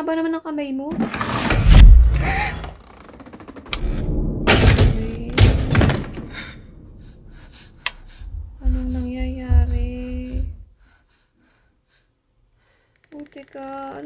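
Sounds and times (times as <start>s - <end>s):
loud thud with low rumble: 1.6s - 2.7s, 3.8s - 10.7s.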